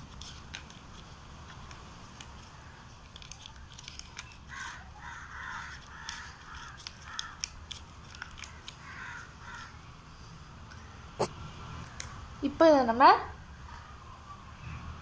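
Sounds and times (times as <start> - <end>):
paper crinkling: 3.0 - 4.4, 5.8 - 8.8.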